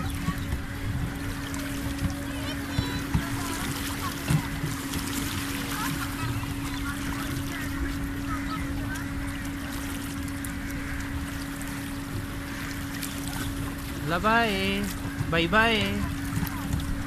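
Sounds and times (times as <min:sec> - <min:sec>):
wind on microphone: 0:00.0 - 0:09.4
motor hum: 0:00.0 - 0:17.0.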